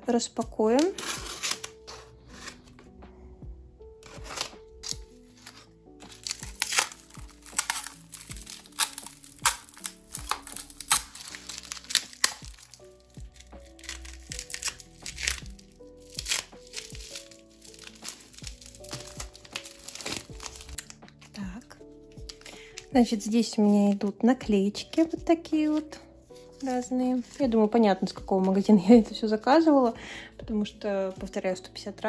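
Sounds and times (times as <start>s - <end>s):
soft background music: 0.0s - 32.0s
packaging crinkling and tearing: 0.7s - 2.7s, 4.0s - 24.2s.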